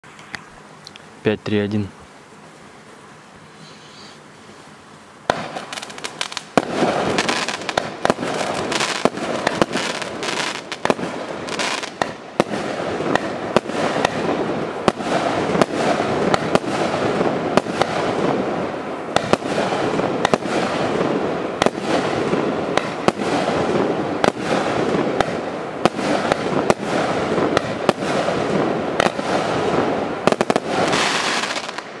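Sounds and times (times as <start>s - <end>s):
fireworks crackling: 0.0s - 32.0s
fireworks fuse hiss: 1.0s - 32.0s
fireworks shots firing: 5.2s - 32.0s.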